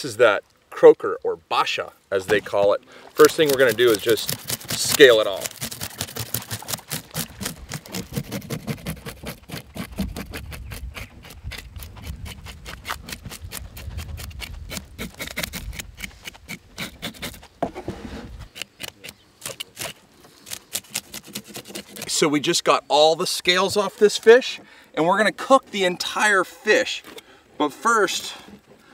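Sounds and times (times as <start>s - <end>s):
knife scraping fish scales: 3.2s - 17.4s, 18.6s - 22.2s.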